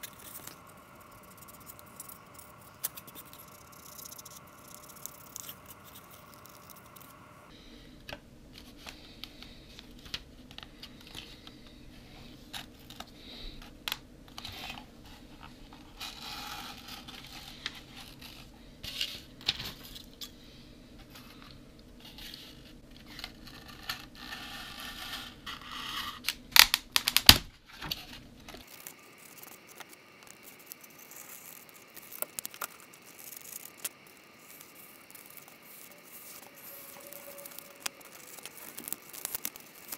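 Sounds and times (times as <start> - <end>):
knife cutting polystyrene foam: 16.0 - 18.5, 28.6 - 39.9.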